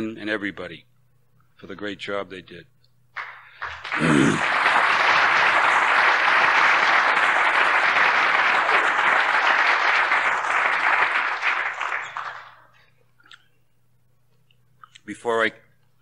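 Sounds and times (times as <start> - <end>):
audience applauding: 3.2 - 12.8.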